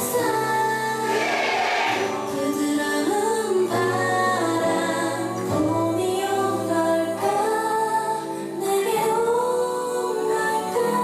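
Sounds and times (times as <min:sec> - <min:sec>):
pop backing track: 0:00.0 - 0:11.0
women singing pop song: 0:00.0 - 0:11.0.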